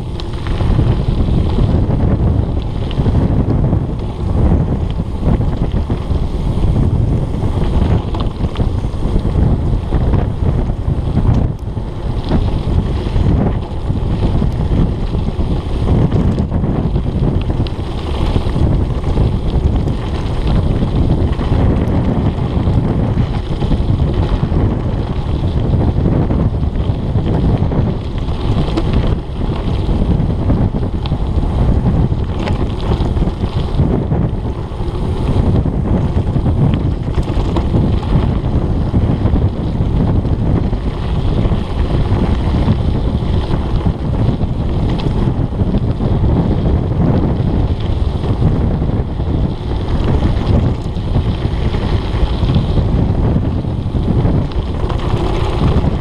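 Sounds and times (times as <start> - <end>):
bike rattling: 0.0 - 56.0
tyres crunching on dirt: 0.0 - 56.0
wind buffeting microphone: 0.0 - 56.0.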